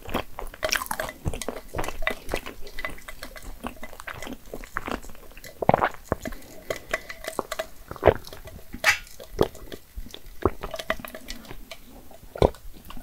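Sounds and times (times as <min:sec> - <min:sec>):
slurping through a straw: 0:00.0 - 0:13.0
swallowing gulps: 0:03.3 - 0:13.0.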